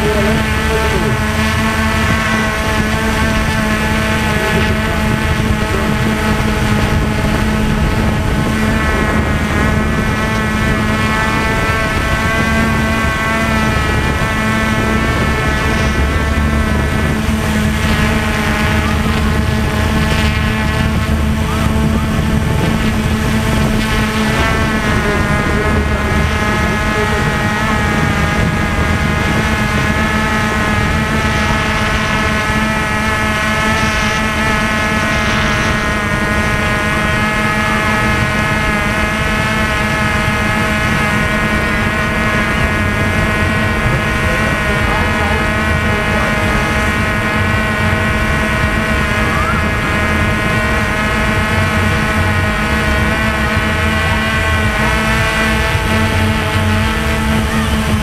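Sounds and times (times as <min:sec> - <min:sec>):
drone propellers whining: 0:00.0 - 0:58.0.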